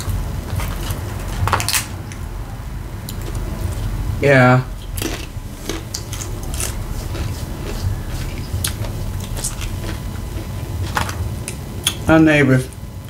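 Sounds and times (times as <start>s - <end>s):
person chewing crunchy food: 0.0s - 2.2s, 4.7s - 12.1s
low rumble: 0.0s - 12.0s.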